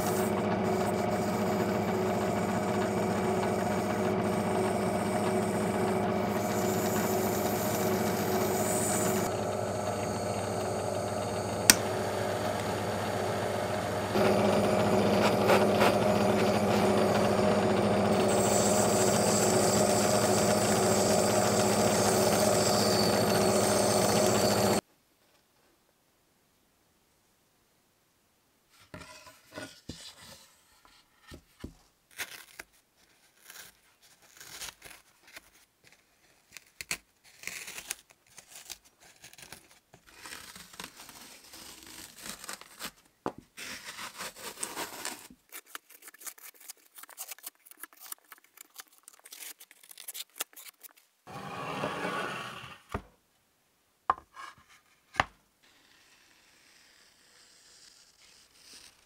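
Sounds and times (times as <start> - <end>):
masking material tearing and crinkling: 32.1 - 51.1.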